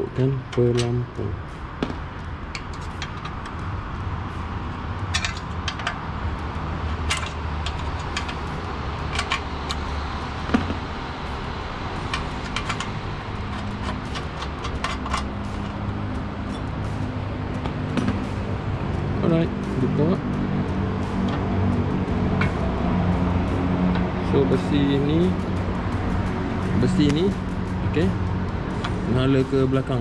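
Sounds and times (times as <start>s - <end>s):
steady low hum: 0.0s - 30.0s
small clicks and metallic rattles: 5.1s - 6.0s, 7.0s - 9.9s, 12.1s - 15.3s.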